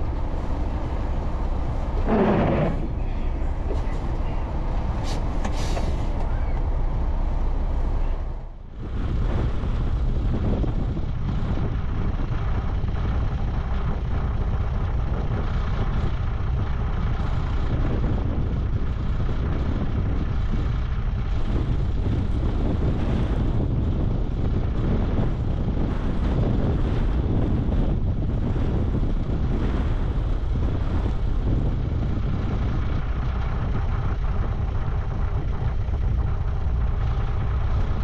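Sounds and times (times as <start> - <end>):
diesel truck engine rumbling: 0.0 - 38.0
short hiss: 5.0 - 6.1.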